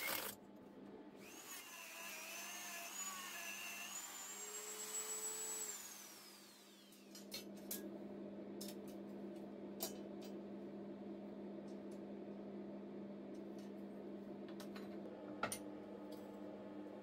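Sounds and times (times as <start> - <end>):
low electrical hum: 5.3 - 17.0.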